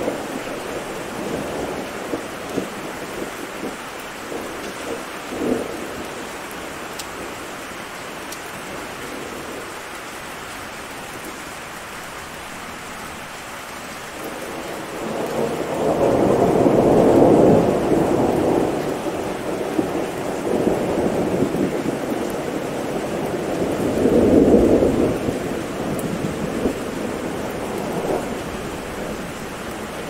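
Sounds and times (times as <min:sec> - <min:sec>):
steady rain: 0:00.0 - 0:30.0
rolling thunder: 0:14.2 - 0:30.0.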